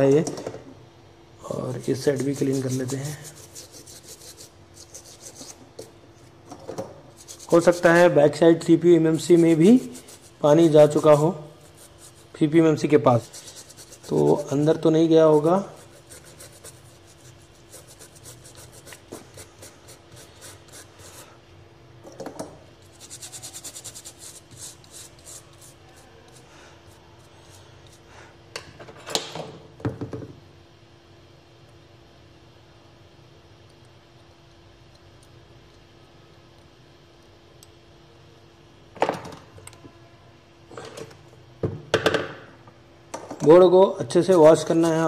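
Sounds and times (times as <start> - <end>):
faint electrical hum: 0.0 - 45.0
brush scrubbing circuit board: 1.7 - 5.6, 7.2 - 21.3, 22.8 - 27.0.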